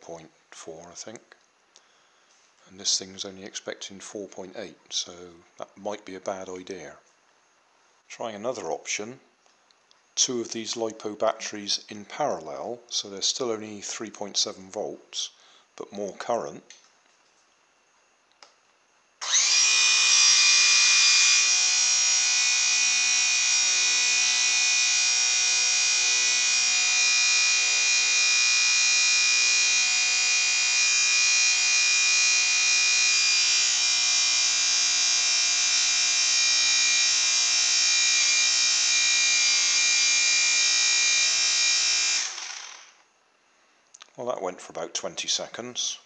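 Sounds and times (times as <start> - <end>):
model plane electric motor whining: 19.2 - 43.0.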